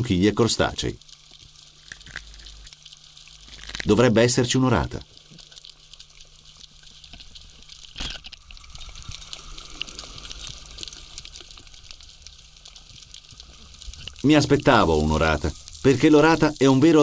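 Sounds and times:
underwater clicks and crackles: 0:00.0 - 0:17.0
fish jaws crunching shells: 0:01.8 - 0:04.0, 0:07.9 - 0:08.5.

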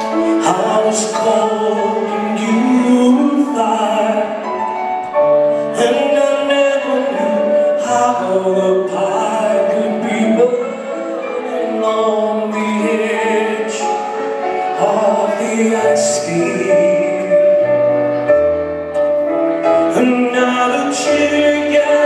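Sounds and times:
band accompaniment: 0:00.0 - 0:22.0
man singing rock ballad: 0:00.2 - 0:04.4, 0:05.7 - 0:13.8, 0:19.9 - 0:22.0.

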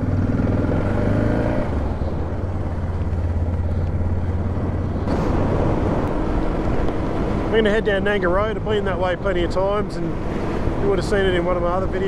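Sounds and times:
motorcycle engine pulling away: 0:00.0 - 0:07.6
wind and road noise: 0:00.0 - 0:12.0.

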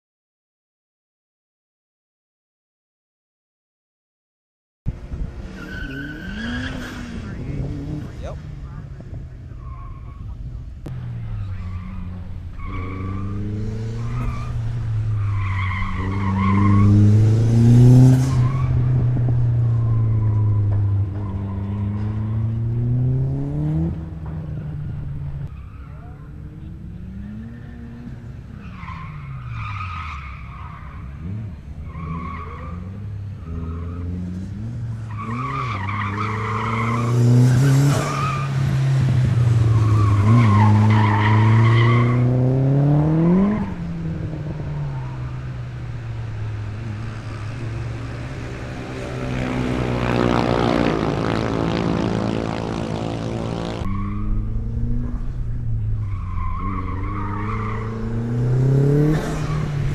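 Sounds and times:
car engine revving: 0:04.9 - 0:59.9
tyres squealing: 0:56.0 - 0:58.3.

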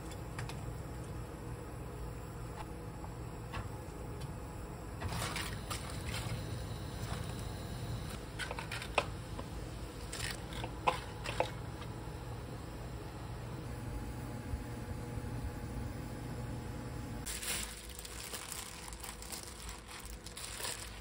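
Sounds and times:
steady low hum: 0:00.0 - 0:21.0
wet vegetables squishing and rustling: 0:10.0 - 0:11.6, 0:17.3 - 0:21.0.

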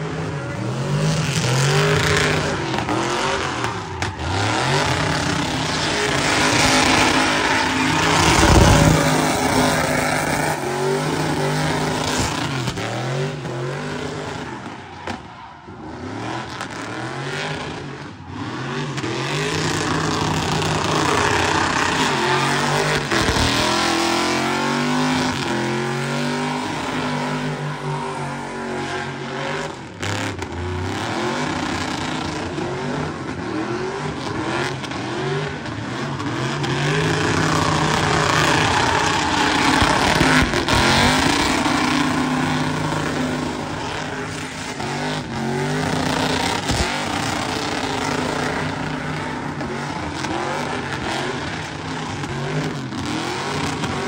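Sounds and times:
truck engine revving: 0:00.0 - 0:54.0
tyres squealing: 0:02.1 - 0:12.4, 0:36.6 - 0:48.9.

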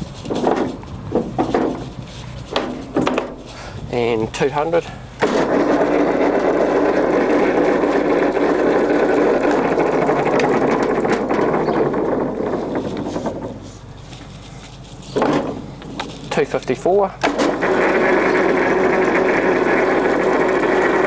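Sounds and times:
lathe running with gear whir: 0:05.4 - 0:12.8, 0:17.4 - 0:21.0.

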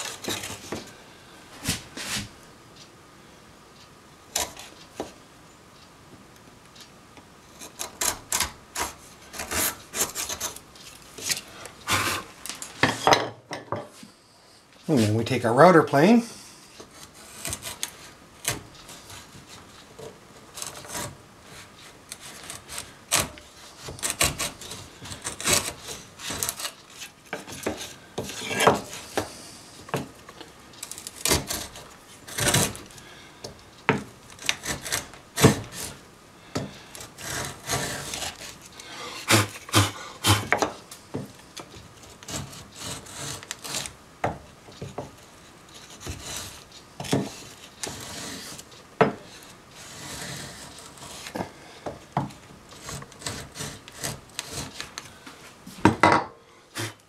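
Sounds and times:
plane blade scraping wood: 0:00.0 - 0:00.8, 0:07.6 - 0:10.6, 0:11.2 - 0:12.3, 0:16.9 - 0:19.7, 0:20.5 - 0:30.0, 0:31.0 - 0:32.9, 0:34.4 - 0:36.0, 0:36.6 - 0:40.8, 0:42.0 - 0:44.0, 0:45.7 - 0:51.5, 0:52.7 - 0:55.0, 0:56.7 - 0:57.0.

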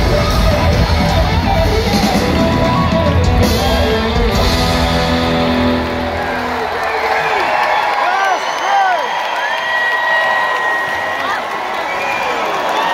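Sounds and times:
drum kit: 0:00.0 - 0:06.8
electric guitar: 0:00.0 - 0:07.2
live rock band: 0:00.0 - 0:07.4.

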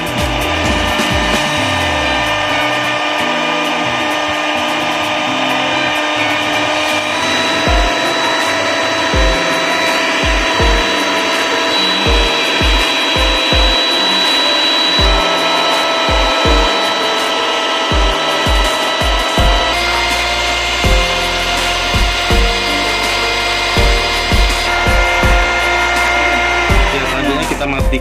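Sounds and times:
electric mixer motor whine: 0:00.0 - 0:28.0
low thumps: 0:05.9 - 0:28.0.

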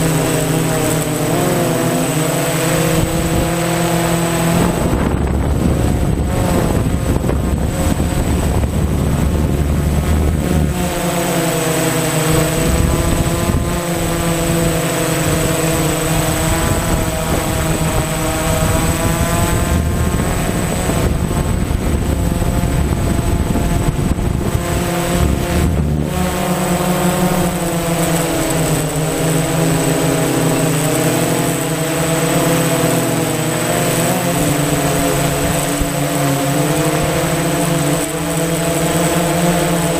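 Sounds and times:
drone propellers whining: 0:00.0 - 0:39.9.

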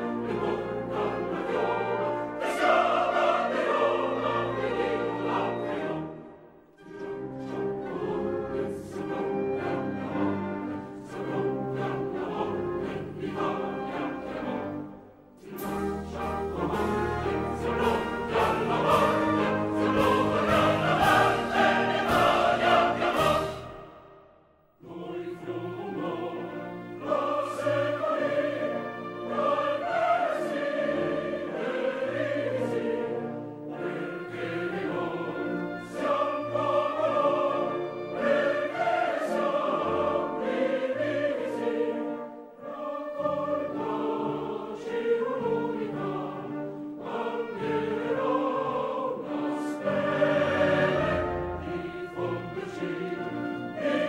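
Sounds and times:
orchestra playing: 0:00.0 - 0:24.3, 0:24.9 - 0:54.0
choir singing sustained notes: 0:00.0 - 0:54.0.

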